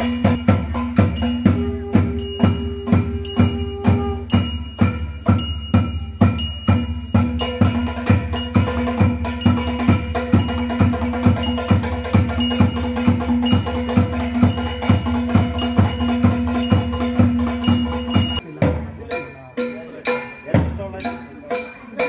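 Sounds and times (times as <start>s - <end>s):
metallic ringing percussion strokes: 0.0s - 22.0s.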